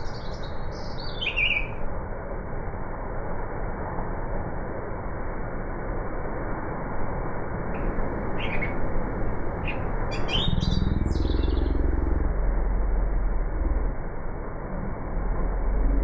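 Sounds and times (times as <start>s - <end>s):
bird chirping: 0.0s - 1.9s, 7.8s - 12.2s
low rumbling noise: 0.0s - 16.0s.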